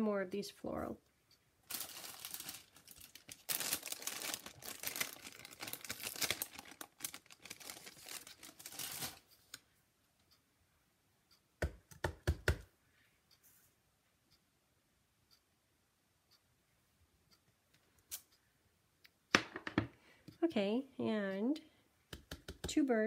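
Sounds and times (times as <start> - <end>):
plastic packaging crinkling: 1.7 - 9.3.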